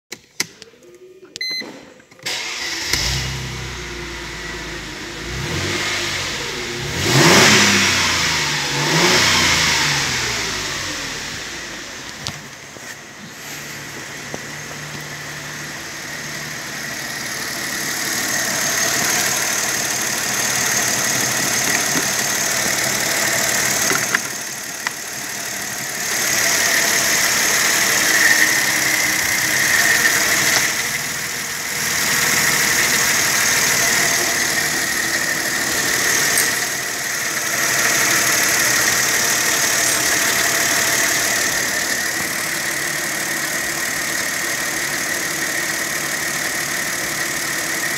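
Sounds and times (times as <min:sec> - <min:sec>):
car engine idling: 0:02.3 - 0:47.9.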